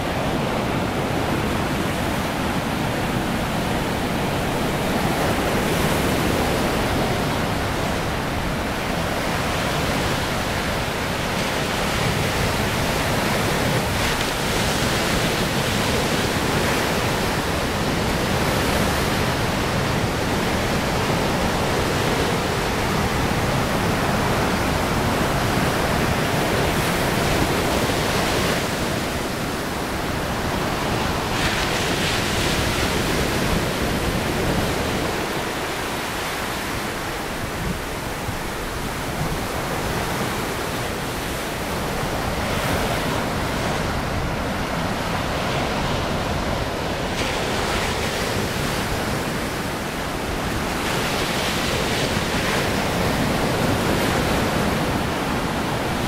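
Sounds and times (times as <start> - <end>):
surf waves washing ashore: 0.0 - 56.0.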